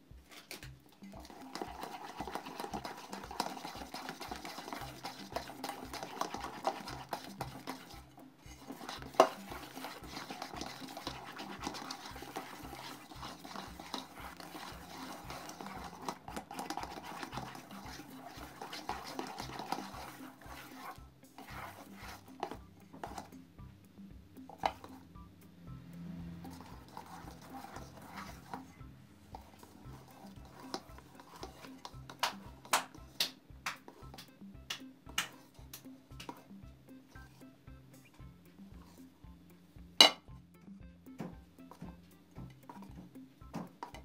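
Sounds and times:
background music with steady beat: 0:00.0 - 0:44.0
whisk beating thick mixture: 0:00.6 - 0:23.4, 0:26.3 - 0:34.3, 0:35.2 - 0:36.5
whisk knocking against bowl: 0:01.0 - 0:23.3, 0:26.4 - 0:28.7, 0:29.3 - 0:34.3.

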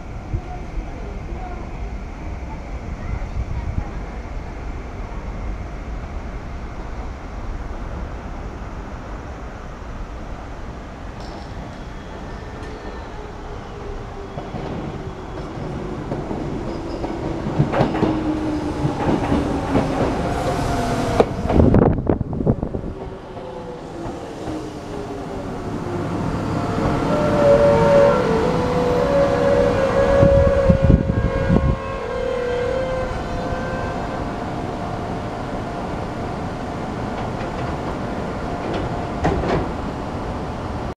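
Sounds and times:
train whine: 0:00.0 - 0:40.9
train wheels clacking on rails: 0:14.3 - 0:21.8, 0:38.6 - 0:39.8.

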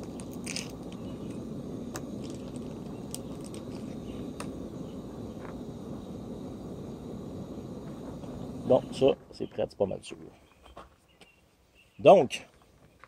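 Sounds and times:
gas stove burner hissing: 0:00.0 - 0:10.0.

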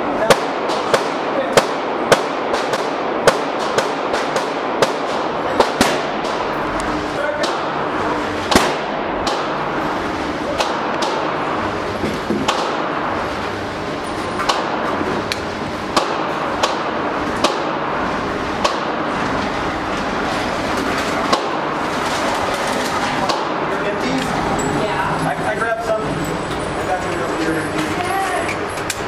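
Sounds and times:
gunshot cracks: 0:00.3 - 0:06.5, 0:08.5 - 0:09.6, 0:12.4 - 0:13.0, 0:15.9 - 0:17.8.

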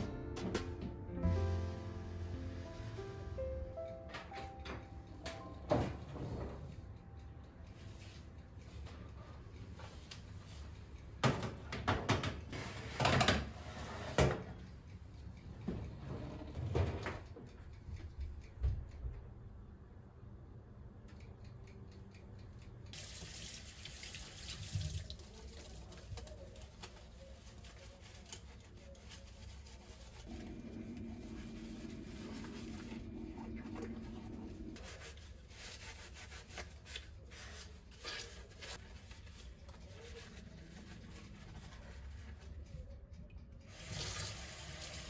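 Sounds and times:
tap water running into sink: 0:23.0 - 0:25.7, 0:43.7 - 0:45.0
steady low hum: 0:30.2 - 0:35.5.

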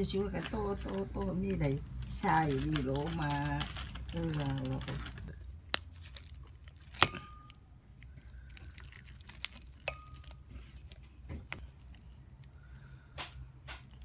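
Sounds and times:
utensil clinking on metal bowl: 0:09.8 - 0:10.6.

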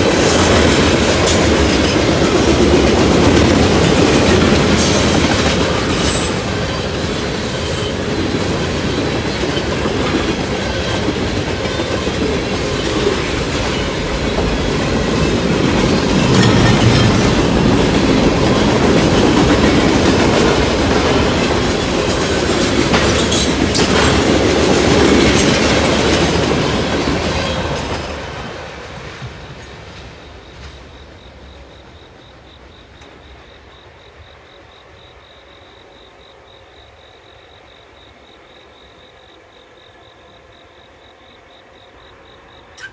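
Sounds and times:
train wheel squeals: 0:00.0 - 0:24.3, 0:35.0 - 0:42.9
train wheels clacking on rails: 0:00.0 - 0:42.9.

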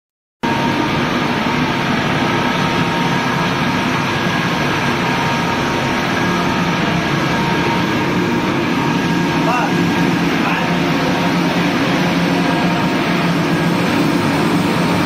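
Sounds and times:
constant high whine: 0:00.4 - 0:15.0
machinery drone: 0:00.4 - 0:15.0.

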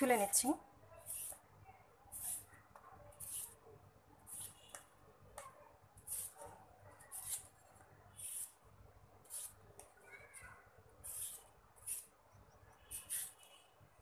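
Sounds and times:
knife peeling cucumber: 0:01.0 - 0:01.4, 0:02.1 - 0:03.6, 0:06.0 - 0:07.6, 0:08.2 - 0:08.6, 0:09.2 - 0:12.1, 0:12.8 - 0:13.4.

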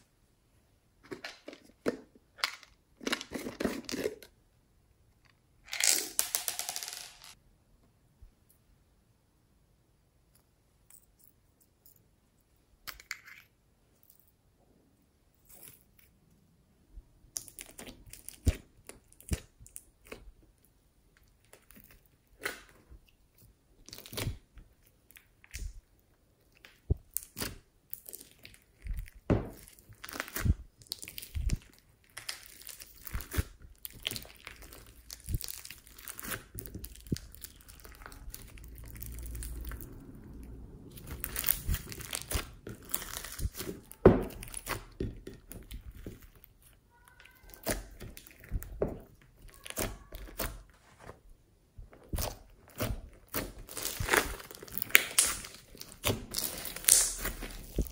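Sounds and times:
hands squishing sticky slime: 0:17.3 - 0:20.5, 0:21.2 - 0:51.2, 0:51.8 - 0:57.9.

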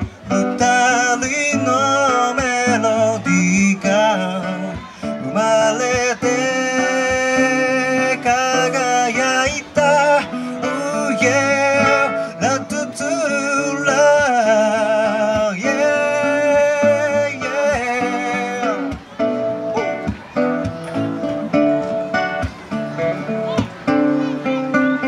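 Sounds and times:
man singing with vibrato: 0:00.0 - 0:20.0
strummed acoustic guitar: 0:00.0 - 0:25.0.

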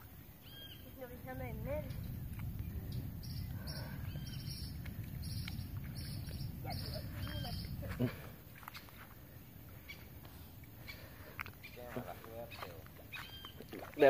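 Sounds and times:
low rumble: 0:00.8 - 0:10.4
short calls: 0:02.9 - 0:09.1, 0:09.7 - 0:14.0.

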